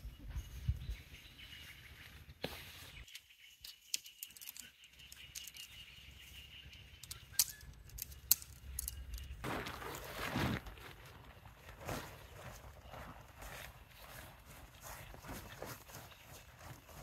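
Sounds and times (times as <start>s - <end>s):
faint bird chirps: 0.0s - 7.9s
sharp clicks and ticks: 6.7s - 9.4s.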